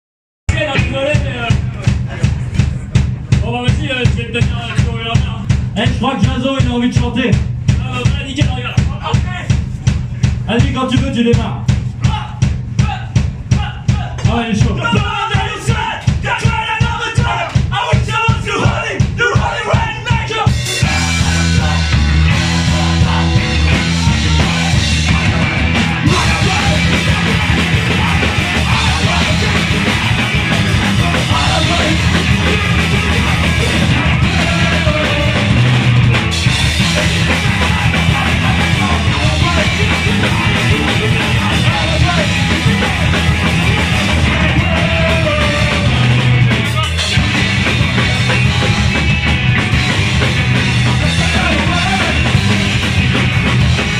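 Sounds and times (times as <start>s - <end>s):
punk rock band playing: 0.5s - 53.9s
singer shouting: 10.5s - 36.0s, 36.8s - 47.2s, 51.0s - 52.4s.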